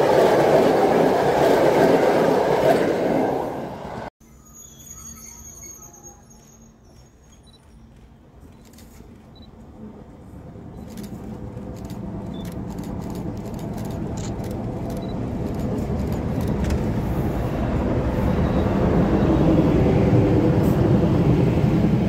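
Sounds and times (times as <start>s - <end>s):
electric train passing: 9.5s - 22.0s.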